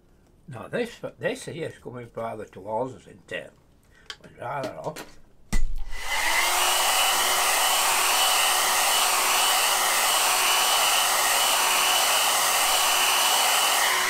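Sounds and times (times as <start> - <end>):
hair dryer blowing: 5.7 - 14.0.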